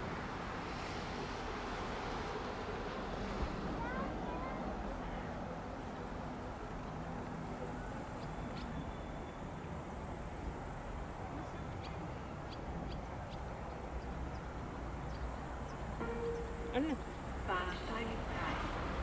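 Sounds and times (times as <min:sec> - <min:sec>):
high bird chirps: 0:16.0 - 0:17.3.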